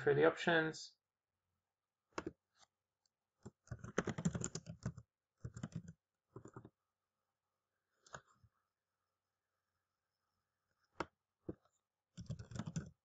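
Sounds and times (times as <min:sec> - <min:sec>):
computer keyboard typing: 0:03.4 - 0:06.7, 0:12.2 - 0:13.0.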